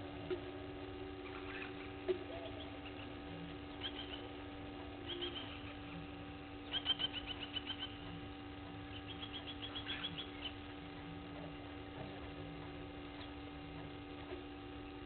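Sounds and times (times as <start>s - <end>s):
low electrical hum: 0.0s - 15.0s
birds calling metallic tink notes: 0.4s - 10.8s.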